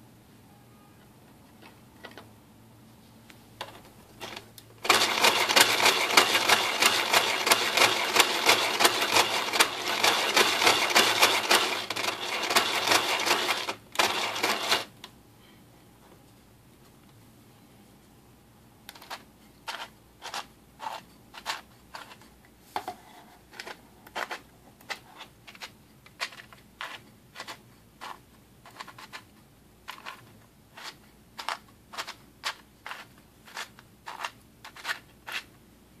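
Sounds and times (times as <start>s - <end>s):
plastic gears clicking: 4.2s - 14.9s.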